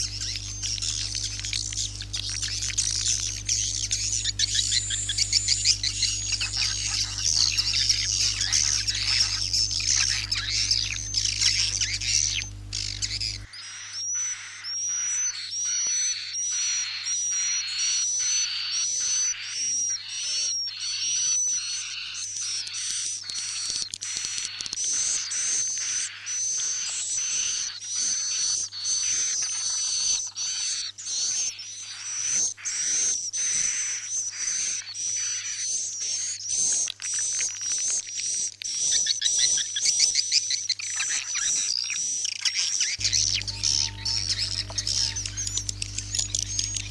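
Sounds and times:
steady low hum: 0.0s - 13.5s, 43.0s - 46.9s
high twittering bird chirps: 0.0s - 46.9s.

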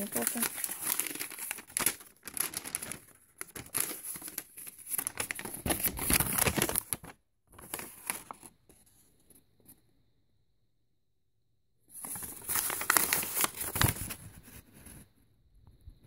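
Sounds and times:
paper rustling and crinkling: 0.0s - 8.6s, 12.0s - 15.1s.

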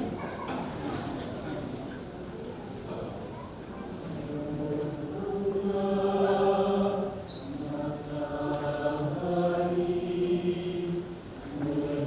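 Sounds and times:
mixed choir singing held chords: 3.8s - 12.0s.

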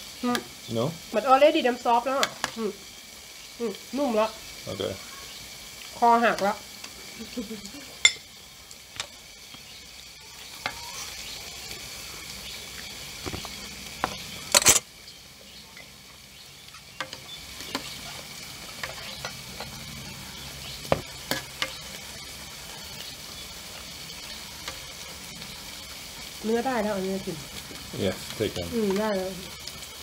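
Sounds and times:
meat sizzling on a grill pan: 0.0s - 30.0s
utensils clinking on plates: 8.0s - 8.3s, 14.5s - 14.8s
utensil clatter: 14.1s - 14.8s.

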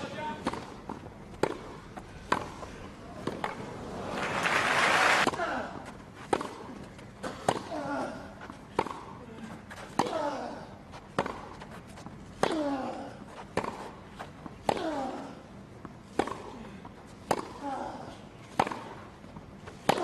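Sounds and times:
racquet hitting tennis ball: 0.4s - 2.6s, 19.8s - 20.0s
tennis player grunting: 6.5s - 11.4s, 12.4s - 13.9s, 14.6s - 15.5s, 16.1s - 19.0s.

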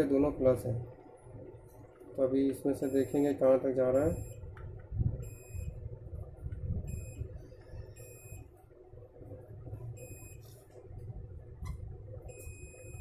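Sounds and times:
multimeter continuity beep: 2.7s - 4.5s, 5.2s - 5.8s, 6.8s - 8.6s, 9.9s - 10.6s, 12.2s - 13.0s.

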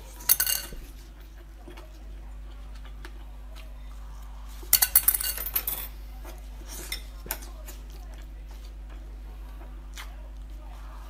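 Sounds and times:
chewing clicks and crackles: 0.9s - 4.3s, 6.2s - 10.6s.

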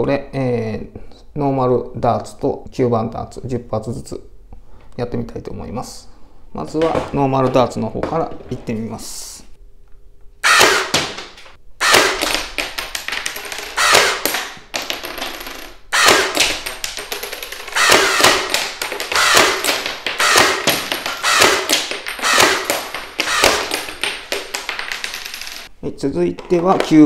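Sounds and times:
dart blaster firing: 10.4s - 11.2s, 11.8s - 12.6s, 13.6s - 14.5s, 15.9s - 16.8s, 17.4s - 24.0s
plastic shells clattering on wooden floor: 12.2s - 25.7s.

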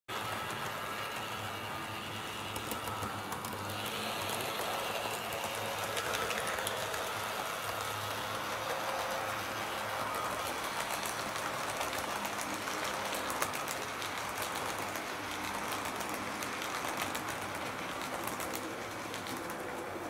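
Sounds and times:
model train motor humming: 0.1s - 20.0s
wheels clicking over rail joints: 0.1s - 20.0s.

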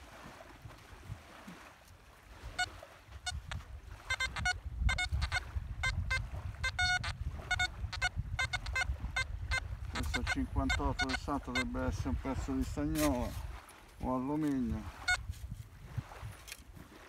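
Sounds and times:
metal detector beeps: 2.6s - 11.8s, 15.0s - 15.3s.

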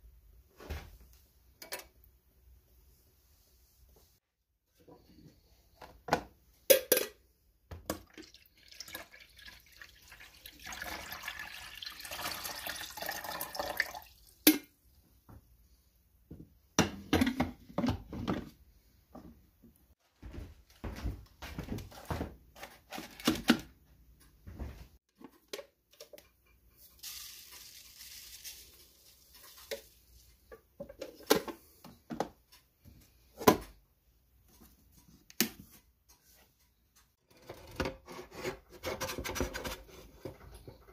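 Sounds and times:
water pouring: 7.9s - 14.4s, 26.8s - 30.3s.

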